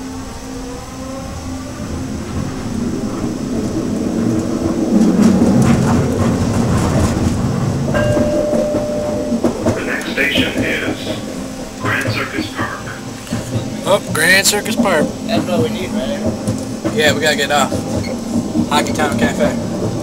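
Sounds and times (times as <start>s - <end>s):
wheel-on-rail rumble: 0.0s - 20.0s
steady tone: 7.5s - 19.8s.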